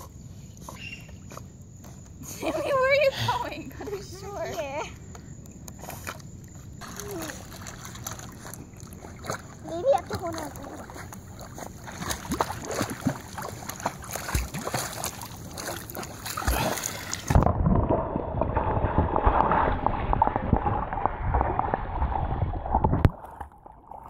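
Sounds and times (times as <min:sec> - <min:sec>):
water splashing and lapping: 0:00.0 - 0:24.0
underwater bubbling and gurgling: 0:07.0 - 0:24.0.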